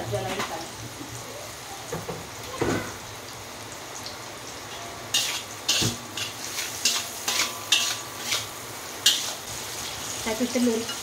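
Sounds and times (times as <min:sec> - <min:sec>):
food sizzling in oil: 0:00.0 - 0:11.0
metal spatula scraping wok: 0:05.1 - 0:11.0.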